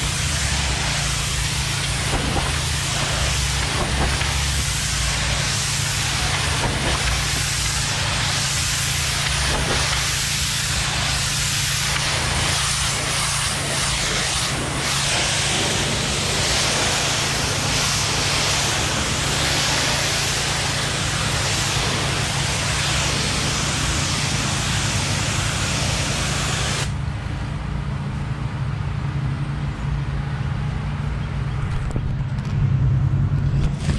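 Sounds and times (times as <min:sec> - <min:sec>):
pressure washer spray hissing: 0:00.0 - 0:27.0
pressure washer engine humming: 0:00.0 - 0:28.2.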